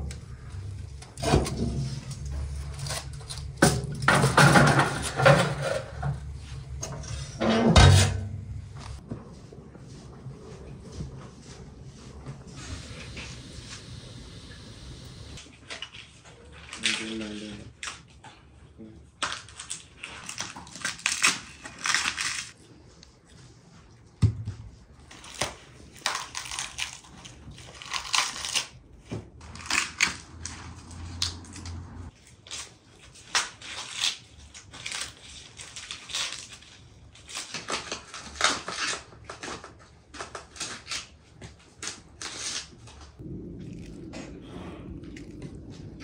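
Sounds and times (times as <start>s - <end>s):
corn husks ripping and rustling: 15.4s - 18.1s, 19.2s - 22.6s, 25.0s - 44.0s.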